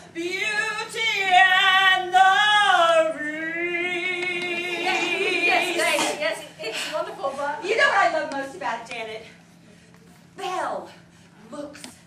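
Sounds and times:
woman singing with vibrato: 0:00.0 - 0:06.5.

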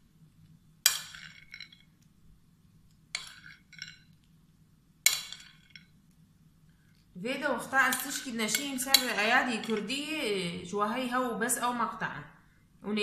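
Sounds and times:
metal spoon clinking on plate: 0:03.1 - 0:04.2, 0:07.9 - 0:09.9.

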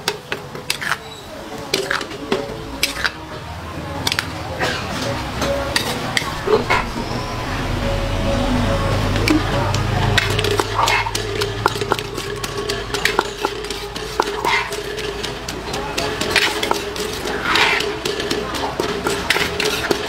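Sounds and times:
spoon clinking in wooden mortar: 0:10.1 - 0:20.0.

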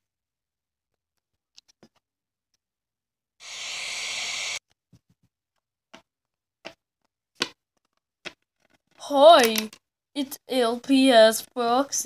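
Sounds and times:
steady hiss: 0:03.4 - 0:04.6.

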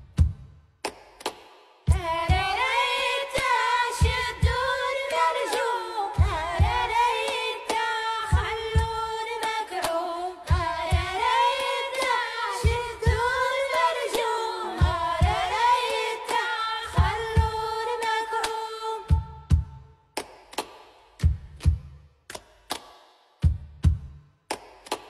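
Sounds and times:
repeated drum hits: 0:00.0 - 0:02.8, 0:03.4 - 0:04.8, 0:06.2 - 0:07.1, 0:08.3 - 0:09.1, 0:10.5 - 0:13.9, 0:14.8 - 0:17.8, 0:19.1 - 0:22.0, 0:23.4 - 0:25.0.

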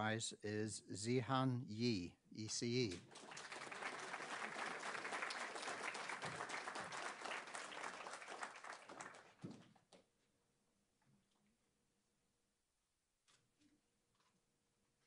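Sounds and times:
audience applauding: 0:03.0 - 0:09.6.

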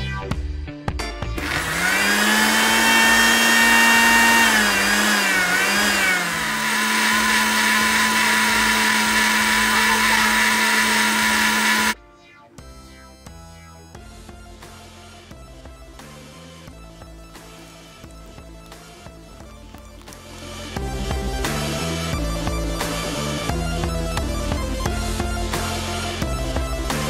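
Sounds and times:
blender motor blending fruit: 0:01.4 - 0:12.0.

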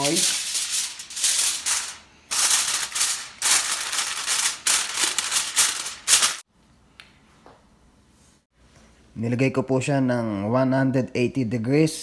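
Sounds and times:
aluminium foil crinkling: 0:00.0 - 0:06.4.

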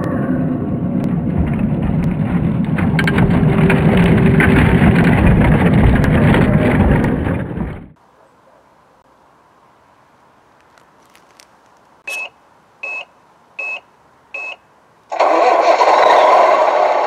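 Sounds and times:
simulated truck engine rumble: 0:00.0 - 0:08.0
tyres crunching over dirt: 0:10.6 - 0:12.3.

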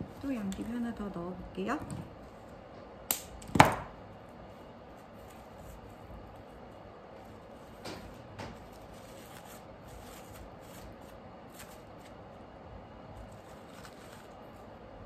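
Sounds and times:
artificial flowers rustling: 0:04.3 - 0:15.0.

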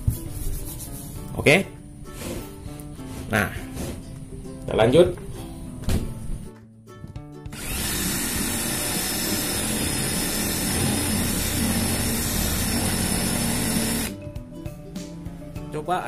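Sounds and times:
cordless drill boring into wood: 0:07.5 - 0:14.1.

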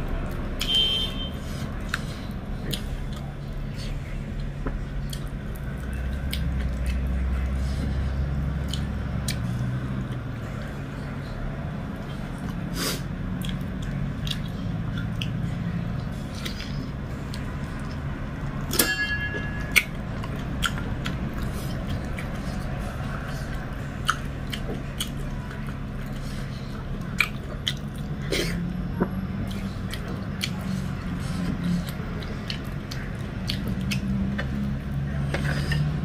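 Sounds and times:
low steady hum: 0:00.0 - 0:36.0
soft chewing and lip smacks: 0:01.6 - 0:12.7, 0:13.3 - 0:18.6, 0:19.7 - 0:36.0
short metallic clink: 0:18.8 - 0:19.6.

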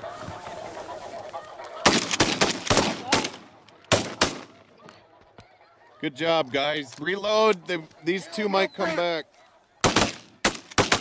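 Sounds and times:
geese honking: 0:00.0 - 0:06.4
shotgun blasts: 0:01.9 - 0:04.5, 0:09.8 - 0:11.0.

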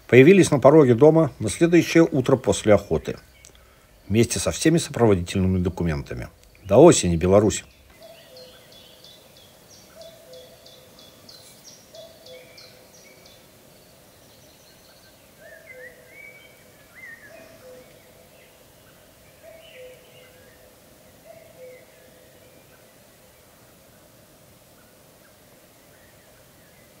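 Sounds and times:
warbled bird phrases: 0:00.0 - 0:13.4, 0:15.3 - 0:22.8.

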